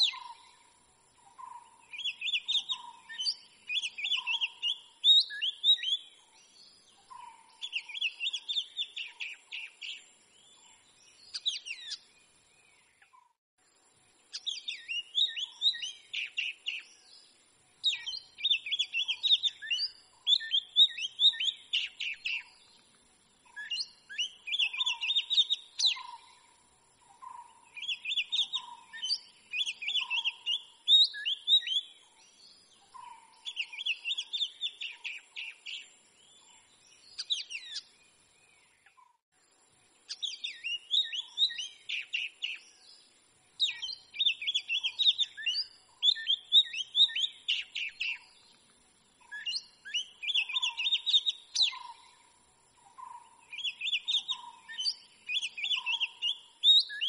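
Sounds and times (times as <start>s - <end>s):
bird singing whistled phrases: 0.0s - 0.4s, 1.9s - 6.2s, 7.6s - 10.1s, 11.2s - 12.0s, 14.4s - 17.0s, 17.8s - 22.6s, 23.5s - 26.3s, 27.8s - 32.0s, 33.0s - 36.5s, 37.1s - 37.9s, 40.1s - 42.8s, 43.6s - 48.4s, 49.2s - 52.0s, 53.5s - 57.0s.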